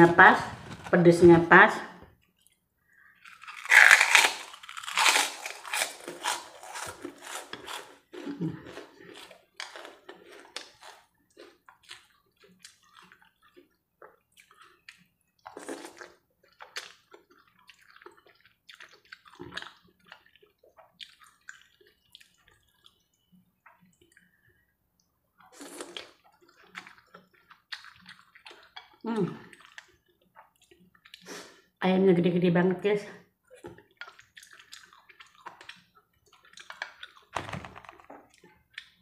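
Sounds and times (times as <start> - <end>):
wet chewing: 2.2 - 24.6, 25.3 - 31.6, 33.4 - 37.3, 38.0 - 39.0
crunching crisp cracker: 3.1 - 13.6.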